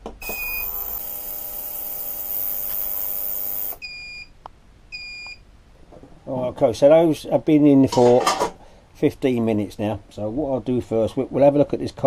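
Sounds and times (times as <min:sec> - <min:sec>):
ultrasonic cleaner humming: 0:00.2 - 0:03.8
control panel beeps: 0:00.2 - 0:04.3.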